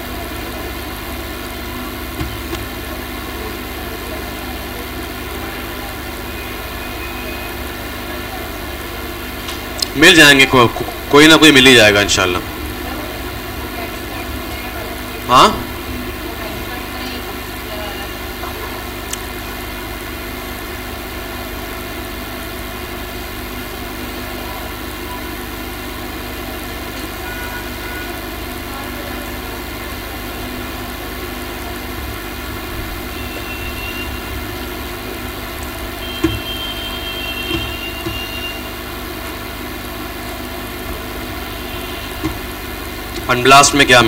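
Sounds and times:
mechanical drone: 0:29.9 - 0:44.0.

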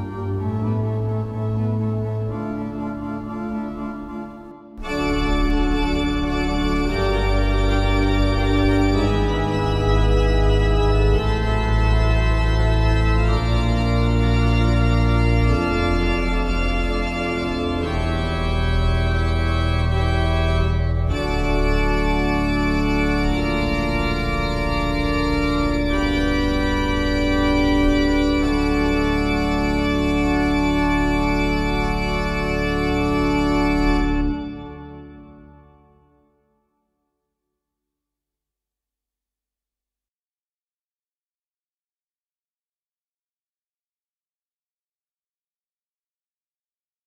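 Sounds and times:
pipe organ playing chords: 0:00.0 - 0:36.2.

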